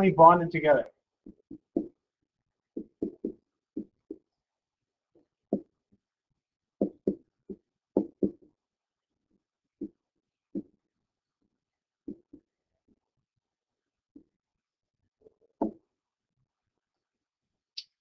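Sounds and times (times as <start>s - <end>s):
stylus tapping on tablet screen: 2.7s - 4.3s, 5.2s - 5.8s, 6.8s - 8.5s, 9.8s - 10.8s, 15.6s - 15.8s.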